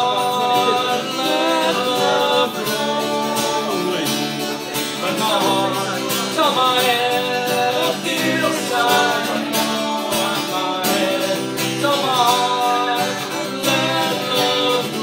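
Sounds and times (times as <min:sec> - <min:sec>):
acoustic guitar strummed: 0:00.0 - 0:15.0
man singing into a microphone: 0:00.0 - 0:15.0.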